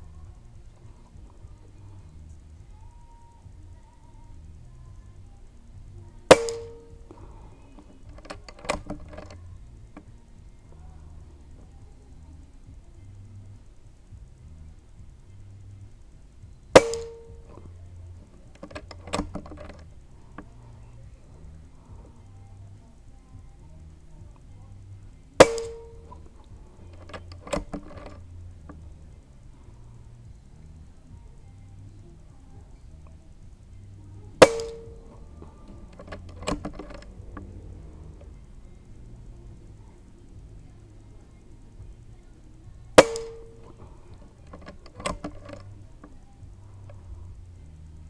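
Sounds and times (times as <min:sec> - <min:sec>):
rifle action metallic clicks: 0:07.8 - 0:09.4, 0:43.0 - 0:43.8
clicks and knocks: 0:26.9 - 0:28.8, 0:43.0 - 0:45.7.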